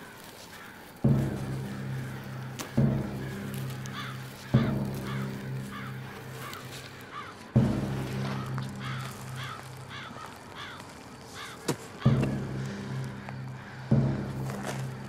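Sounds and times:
crows cawing: 0:00.0 - 0:15.0
low pulsing drone: 0:01.0 - 0:15.0
deep hit: 0:07.6 - 0:10.0.

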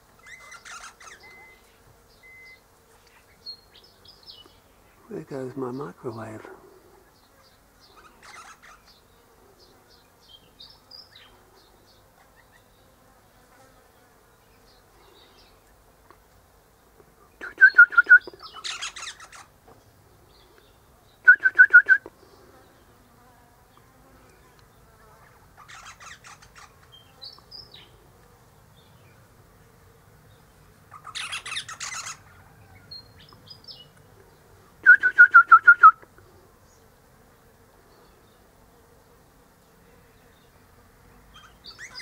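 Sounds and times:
parrot harsh chattering calls: 0:00.2 - 0:01.3, 0:08.0 - 0:08.9, 0:18.5 - 0:19.5, 0:25.6 - 0:26.8, 0:30.9 - 0:32.2.

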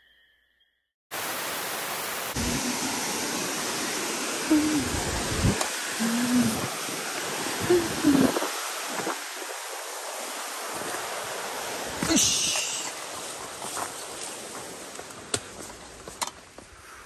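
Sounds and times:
wind on microphone: 0:02.4 - 0:03.6, 0:04.4 - 0:12.4.

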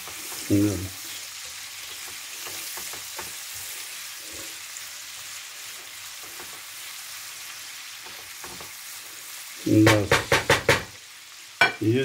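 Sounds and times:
spatula scraping a pan: 0:00.0 - 0:04.8
prawns sizzling in a frying pan: 0:00.0 - 0:12.0.

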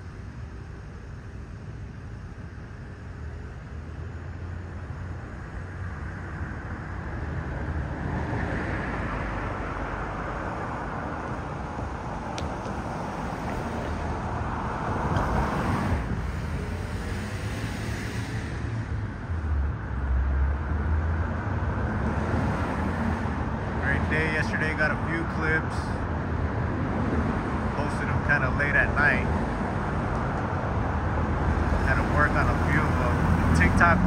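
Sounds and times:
passing cars rumble: 0:00.0 - 0:34.0.

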